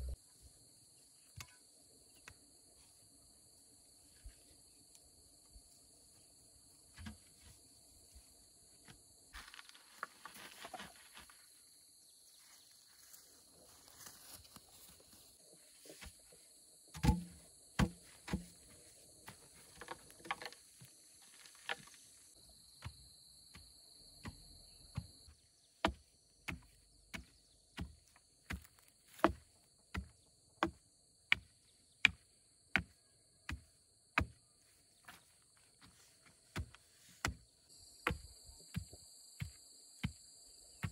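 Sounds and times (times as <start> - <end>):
wooden pole tamping soil: 6.9 - 7.6, 15.8 - 22.1, 22.8 - 34.4, 35.0 - 40.9.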